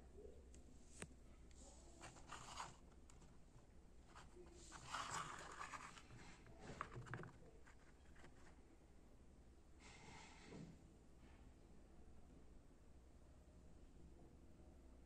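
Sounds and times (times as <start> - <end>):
soft rustling and scraping: 0.8 - 8.6.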